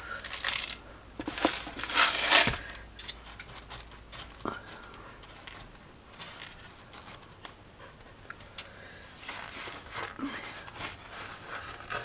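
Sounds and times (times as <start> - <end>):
gravel rustling and clicking: 0.2 - 8.7.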